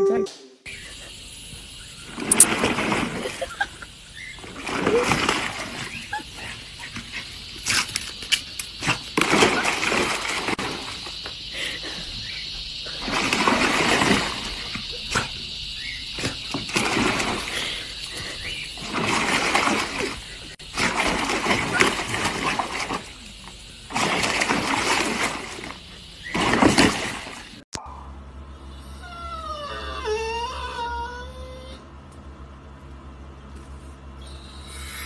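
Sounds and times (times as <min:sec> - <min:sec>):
dog splashing in pool water: 0:02.0 - 0:27.6.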